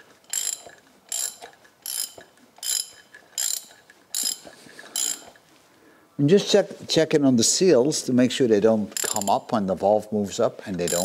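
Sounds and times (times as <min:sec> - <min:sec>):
ratchet wrench clicking: 0:00.3 - 0:05.4, 0:09.0 - 0:09.4, 0:10.8 - 0:11.0.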